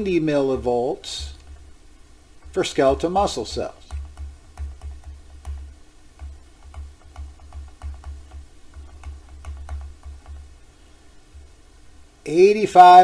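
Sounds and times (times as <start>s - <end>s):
stylus tapping on tablet screen: 1.2s - 10.7s.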